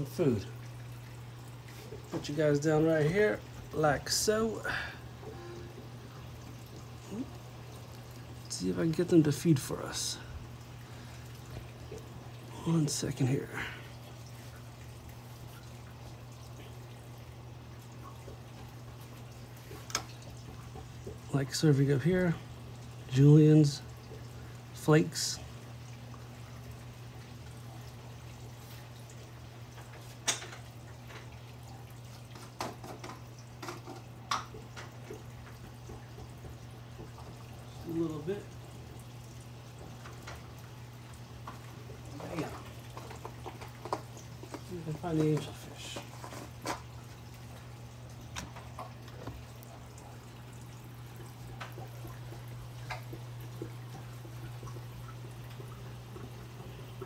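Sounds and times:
low pump hum: 0.0 - 57.0
water trickling and dripping: 0.0 - 57.0
drip clicks: 19.1 - 21.2, 48.2 - 57.0.

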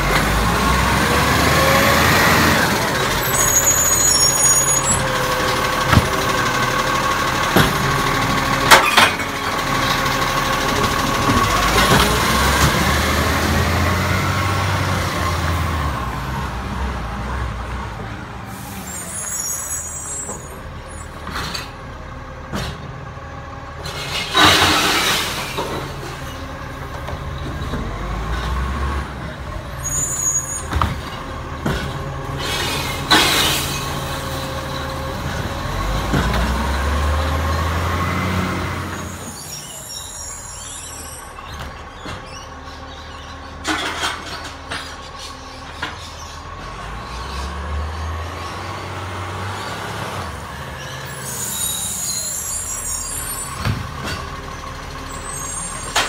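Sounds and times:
diesel truck engine running: 0.0 - 19.0, 20.1 - 56.0
air brake hisses: 18.5 - 20.1.

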